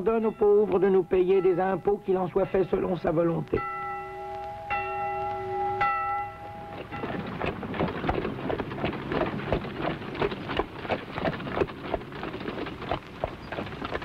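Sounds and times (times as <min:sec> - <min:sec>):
hooves clopping: 0:00.0 - 0:14.0
wooden cart rattling: 0:06.6 - 0:14.0.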